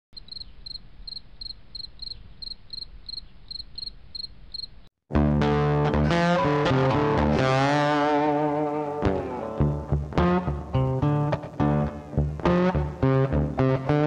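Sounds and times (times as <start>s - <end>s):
cricket chirping: 0.2s - 4.9s
guitar music: 5.1s - 14.0s.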